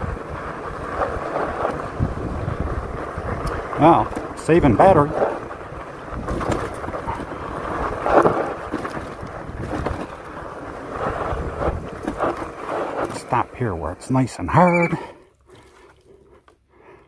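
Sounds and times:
wind buffeting microphone: 0.0 - 13.0
bike tyres rumbling on dirt: 0.0 - 17.0.

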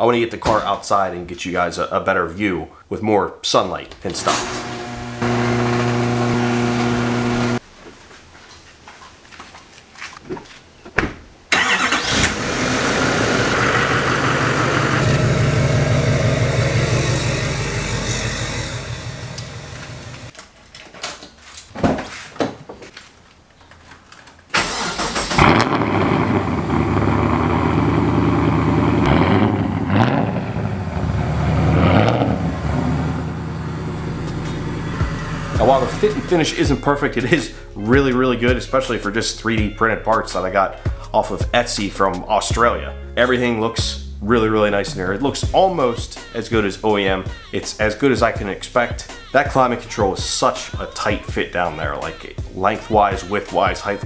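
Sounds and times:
garage door opener motor: 4.2 - 7.6, 33.4 - 36.0
car engine running and revving: 4.3 - 7.6, 12.1 - 20.3, 25.4 - 36.3.

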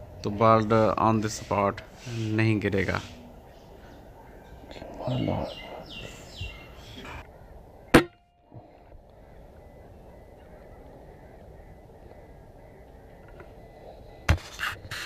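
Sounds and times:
low background noise: 0.0 - 15.0.

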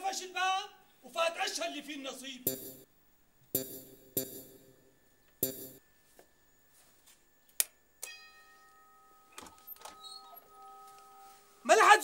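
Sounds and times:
two-note doorbell chime: 8.0 - 11.4.

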